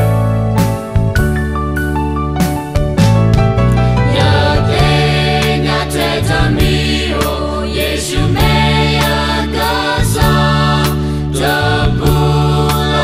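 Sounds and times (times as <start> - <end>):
instrumental accompaniment with beat: 0.0 - 13.0
choir singing: 4.1 - 13.0.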